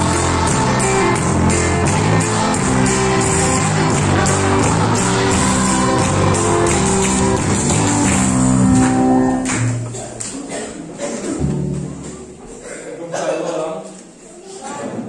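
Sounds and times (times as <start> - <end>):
music with singing: 0.0 - 9.5.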